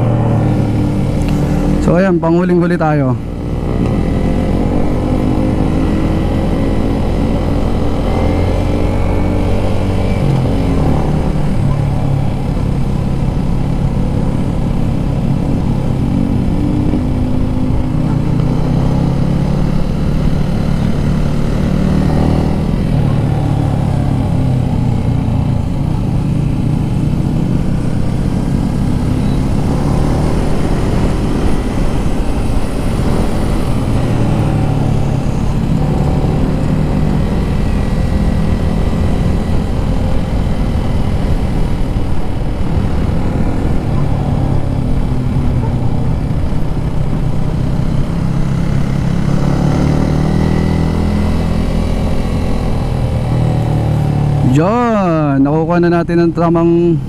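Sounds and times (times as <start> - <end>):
motorcycle engine revving: 0.0 - 57.0
wind rush: 23.9 - 48.4.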